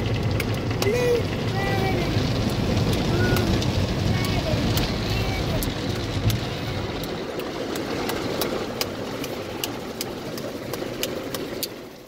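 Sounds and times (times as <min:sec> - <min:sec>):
car wash water spray and brushes: 0:00.0 - 0:12.0
sharp ticks: 0:00.2 - 0:01.0, 0:02.3 - 0:12.0.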